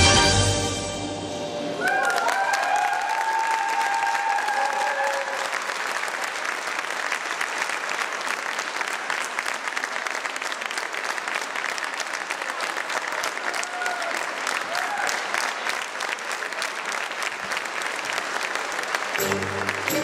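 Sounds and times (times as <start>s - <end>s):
tango music: 0.0s - 2.0s, 19.2s - 20.0s
audience applauding: 1.6s - 20.0s.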